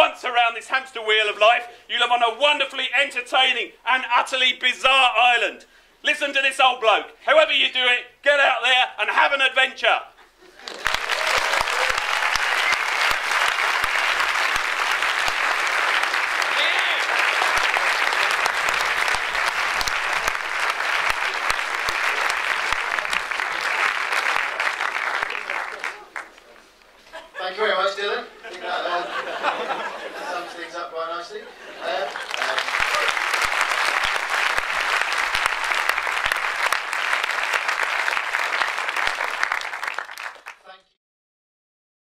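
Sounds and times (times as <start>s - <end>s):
audience applauding: 10.5s - 26.7s, 31.8s - 40.7s.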